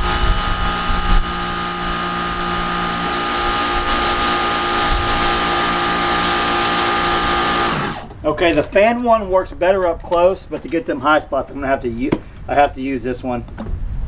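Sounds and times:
pressure washer motor whining: 0:00.0 - 0:08.2.

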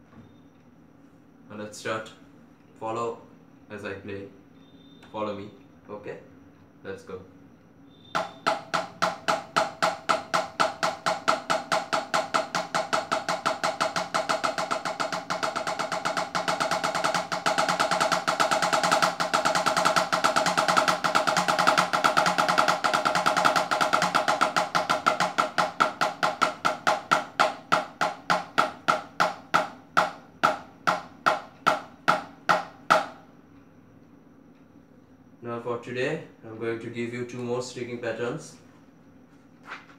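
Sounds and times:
drumsticks tapping electronic pad: 0:08.0 - 0:33.7.

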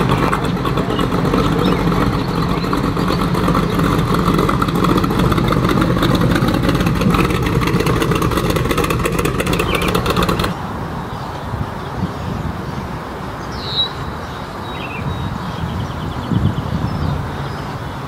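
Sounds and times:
hot rod engine running loudly: 0:00.0 - 0:10.6.

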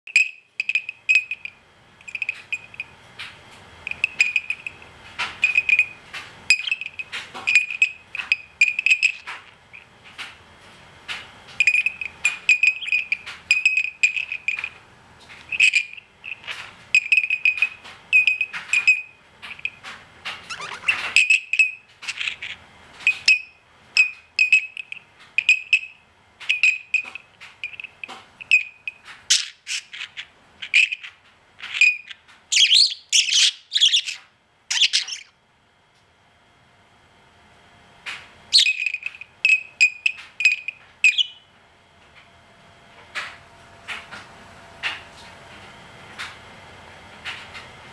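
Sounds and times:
bird warbling chirps: 0:06.5 - 0:08.3, 0:12.6 - 0:13.2, 0:20.5 - 0:21.5, 0:29.3 - 0:35.3, 0:38.5 - 0:41.4
budgerigar imitating bell beeps: 0:11.6 - 0:13.8, 0:38.6 - 0:41.4.

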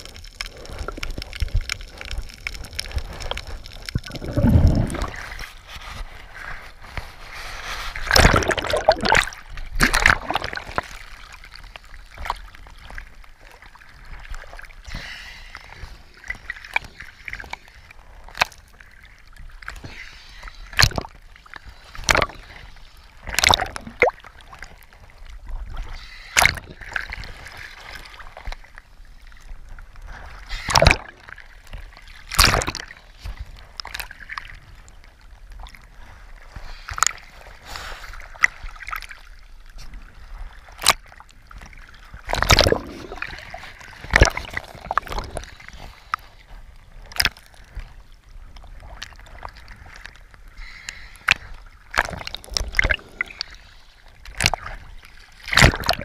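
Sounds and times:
low steady water wash: 0:00.0 - 0:56.0
sea water sloshing: 0:00.0 - 0:56.0
sharp splashes: 0:08.0 - 0:11.0, 0:32.3 - 0:32.9, 0:42.2 - 0:45.3, 0:55.4 - 0:56.0.

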